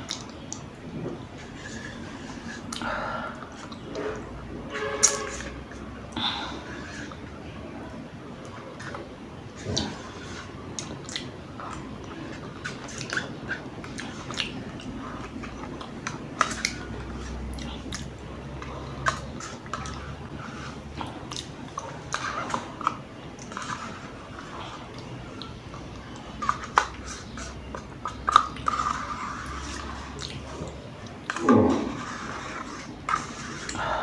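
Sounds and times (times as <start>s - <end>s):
mouth smacks and chewing: 10.7s - 20.0s, 20.9s - 31.9s.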